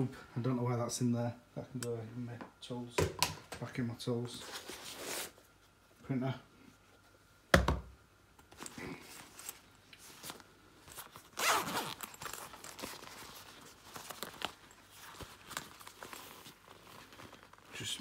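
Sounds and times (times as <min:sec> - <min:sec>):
zip being pulled: 0:11.4 - 0:12.4.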